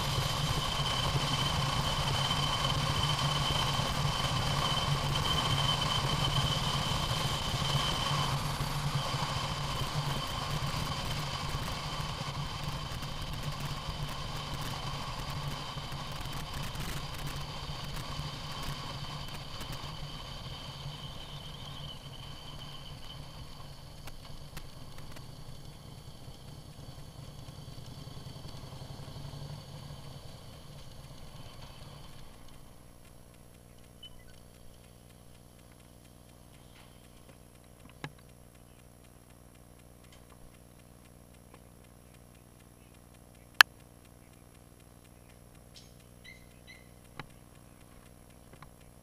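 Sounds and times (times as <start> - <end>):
motorcycle engine rumbling: 0.0 - 49.0
faint low hum: 18.8 - 49.0
short high electronic beeps: 34.0 - 34.6.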